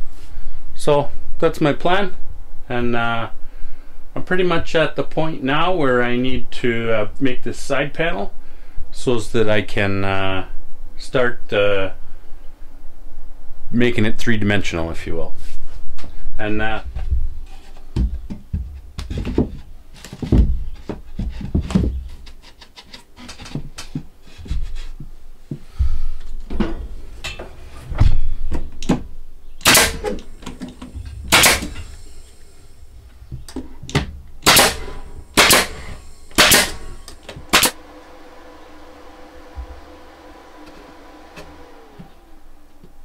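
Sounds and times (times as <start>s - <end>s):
faint steady hum: 0.0s - 43.0s
boards and tools knocking: 17.5s - 25.1s.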